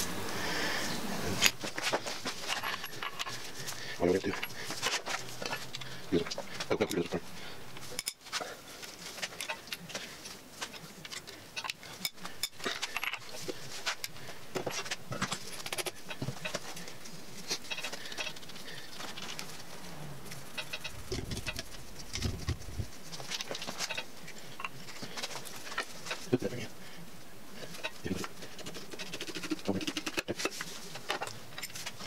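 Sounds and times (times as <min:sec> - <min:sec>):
metallic clicks of engine parts: 0:20.3 - 0:22.3.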